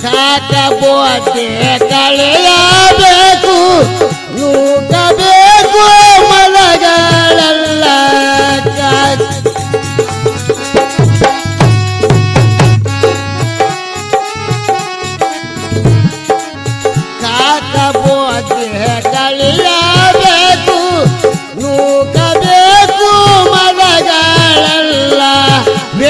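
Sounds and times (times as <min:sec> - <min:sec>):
keyboard and harmonium melody: 0:00.0 - 0:26.0
hand drum beat: 0:07.1 - 0:26.0.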